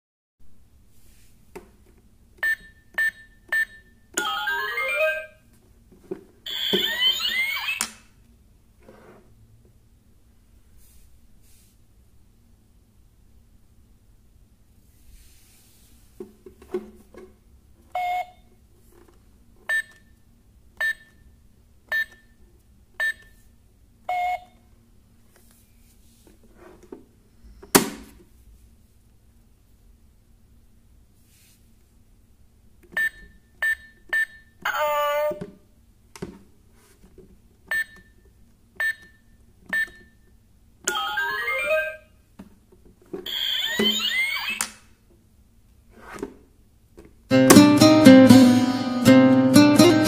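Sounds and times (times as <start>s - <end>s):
keypad beeps: 2.4s - 3.9s, 21.9s - 22.3s, 33.0s - 34.5s, 37.7s - 38.2s, 38.8s - 40.2s.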